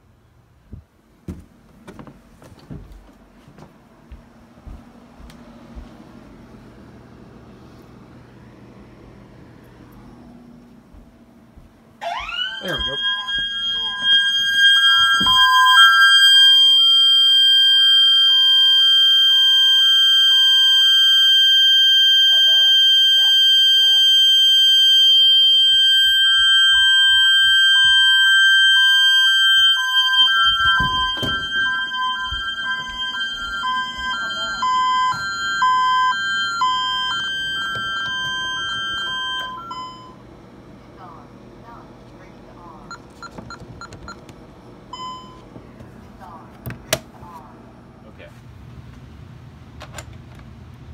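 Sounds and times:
alarm siren high tone: 12.0 - 40.2
hi-lo alarm tone: 12.0 - 40.2.

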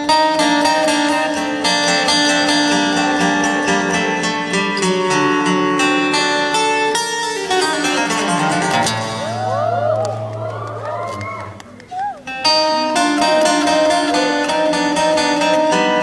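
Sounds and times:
fingerstyle acoustic guitar: 0.0 - 9.4, 11.1 - 16.0.

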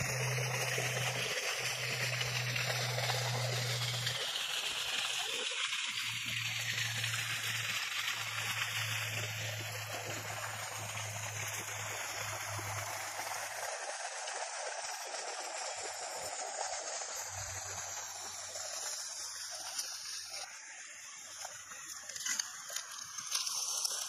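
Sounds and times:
low hum: 0.0 - 5.0, 5.8 - 22.0
running water rushing: 0.0 - 24.0.

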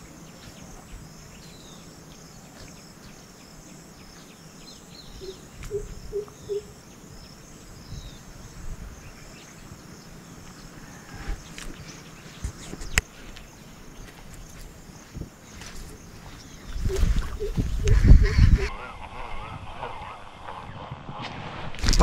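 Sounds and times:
insects chirring: 0.0 - 21.1
bird chirps: 4.0 - 8.3, 15.0 - 19.1
low wind rumble: 4.9 - 22.0.

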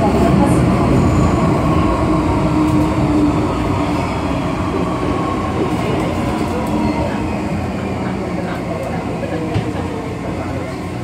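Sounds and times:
train wheels rumbling on track: 0.0 - 11.0.

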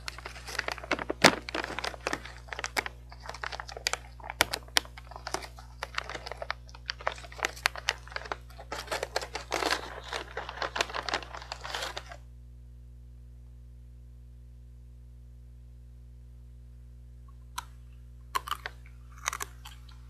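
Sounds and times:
plastic snack bag crinkling: 0.0 - 12.2, 18.4 - 20.0
steady low hum: 0.0 - 20.0.

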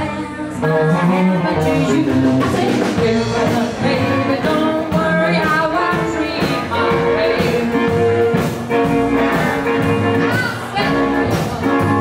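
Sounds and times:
woman singing: 0.0 - 8.5
drums: 0.0 - 12.0
electric guitar: 0.0 - 12.0
upright bass: 0.0 - 12.0.

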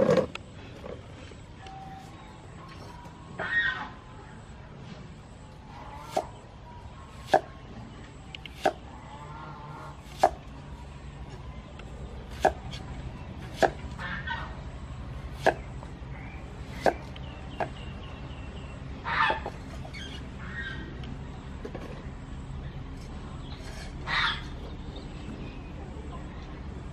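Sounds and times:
faint bird calls: 5.2 - 10.4, 12.3 - 21.9, 23.3 - 25.8.

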